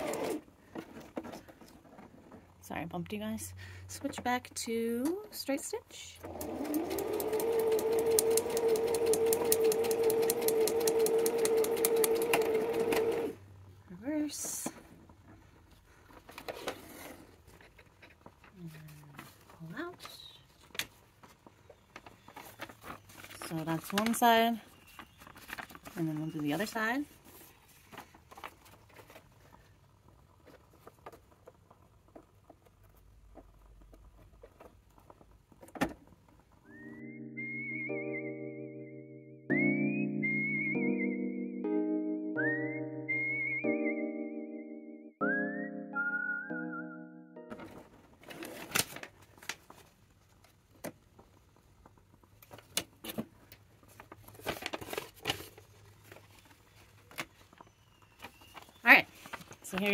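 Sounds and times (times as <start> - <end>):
sewing machine running: 0.0 - 0.4, 6.2 - 13.4.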